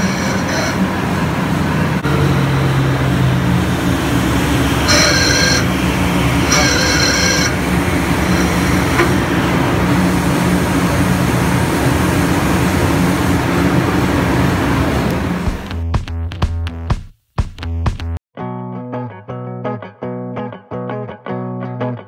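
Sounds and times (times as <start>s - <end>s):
separator spindle mechanical hum: 0.0s - 15.7s
high whine: 0.0s - 15.9s.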